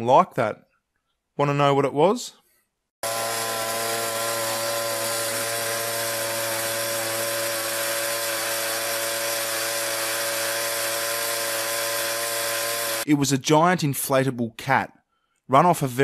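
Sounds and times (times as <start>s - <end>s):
petrol generator running: 3.0s - 13.0s.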